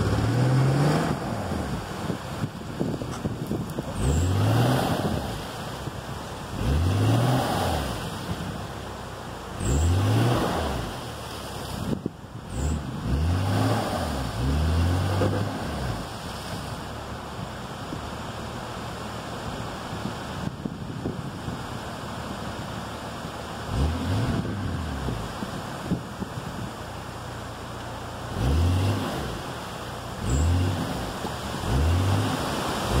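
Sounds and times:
engine revving hard: 0.0s - 1.8s, 4.0s - 5.4s, 6.5s - 8.1s, 9.6s - 11.0s, 12.5s - 16.0s, 23.7s - 25.3s, 28.3s - 29.4s, 30.2s - 33.0s
wind rumbling on microphone: 0.0s - 33.0s.

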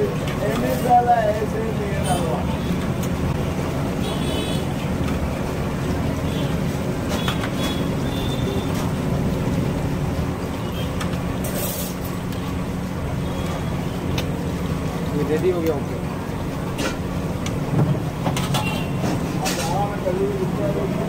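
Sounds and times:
oil bubbling and hissing: 4.7s - 19.4s.

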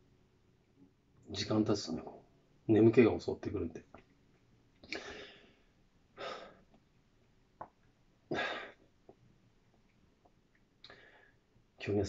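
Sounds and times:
man breathing deeply: 4.9s - 6.7s, 10.9s - 11.5s.

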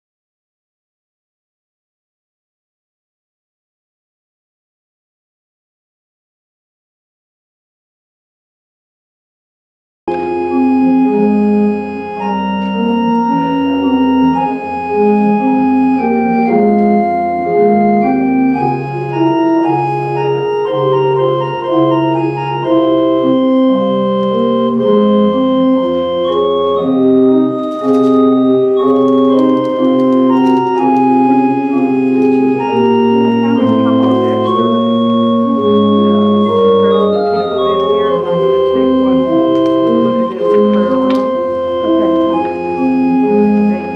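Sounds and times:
organ playing slow chords: 10.1s - 43.9s.

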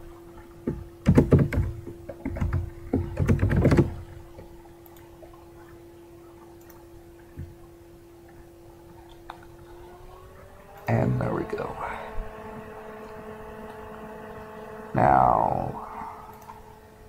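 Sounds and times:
faint hum: 0.0s - 17.0s
keyboard typing: 3.2s - 3.9s.

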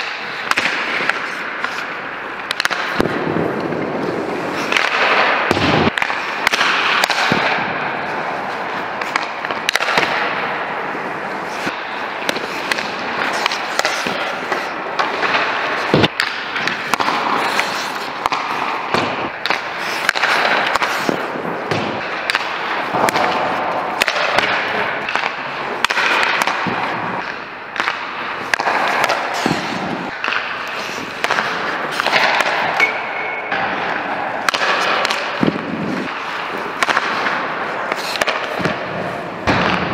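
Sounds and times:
skate blades scraping ice: 0.0s - 39.8s
hockey sticks cracking against pucks: 0.0s - 39.9s
pucks smacking off pads and boards: 0.0s - 39.9s.

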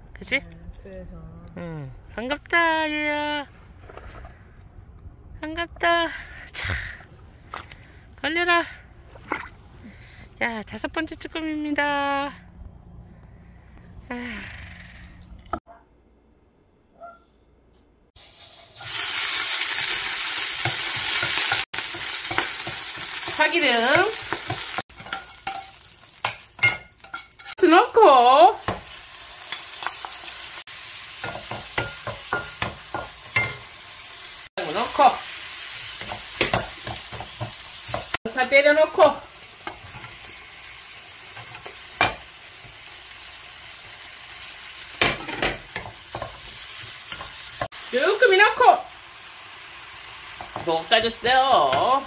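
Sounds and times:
onions sizzling in hot oil: 18.2s - 52.0s.

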